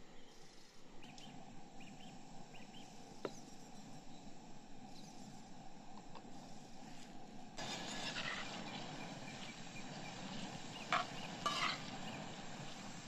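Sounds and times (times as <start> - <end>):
onions sizzling in oil: 7.6 - 13.0.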